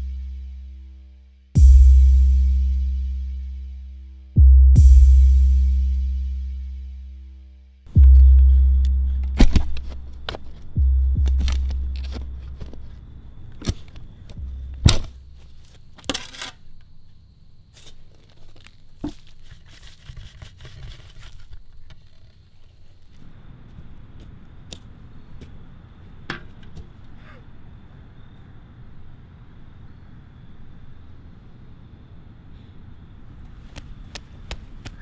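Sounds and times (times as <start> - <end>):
outdoor background noise: 0.0 - 35.0
deep thud: 7.9 - 10.1, 14.4 - 15.2
sharp clicks and scrapes: 8.8 - 16.9.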